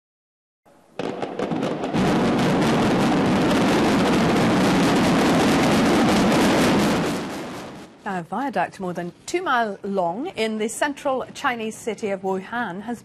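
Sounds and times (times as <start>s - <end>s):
demolition charges detonating: 1.0s - 8.0s.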